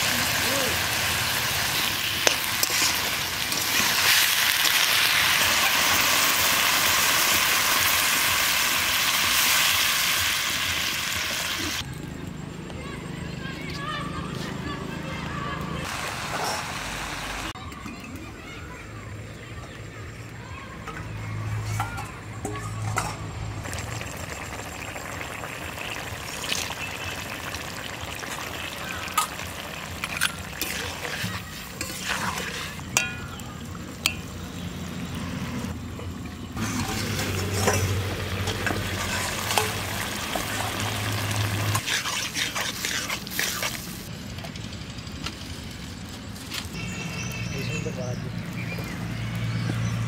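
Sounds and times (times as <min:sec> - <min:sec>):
curry sizzling and bubbling: 0:00.0 - 0:11.9, 0:15.8 - 0:17.6, 0:21.1 - 0:44.6
metal utensils clinking: 0:01.7 - 0:06.1, 0:20.8 - 0:23.5, 0:28.8 - 0:34.4, 0:36.6 - 0:44.0.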